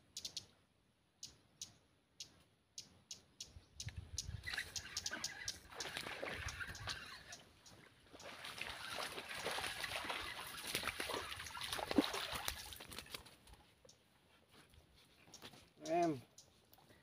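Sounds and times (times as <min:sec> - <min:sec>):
shallow water splashing: 0:04.5 - 0:13.3.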